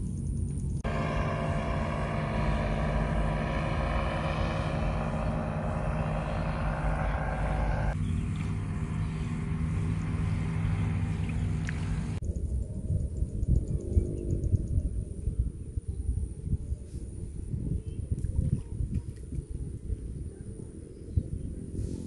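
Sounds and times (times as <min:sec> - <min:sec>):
paramotor engine droning: 0:00.5 - 0:12.3, 0:19.9 - 0:22.0.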